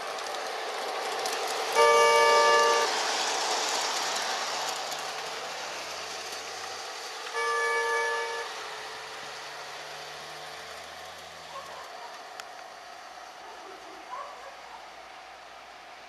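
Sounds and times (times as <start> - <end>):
model train running on track: 0.0 - 16.0
train horn blasts: 1.8 - 3.0, 7.3 - 8.9.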